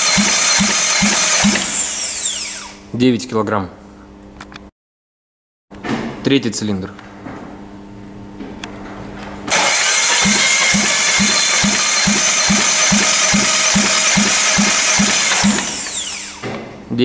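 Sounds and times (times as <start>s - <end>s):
engine cranking whir: 0.0s - 2.8s, 9.5s - 16.4s.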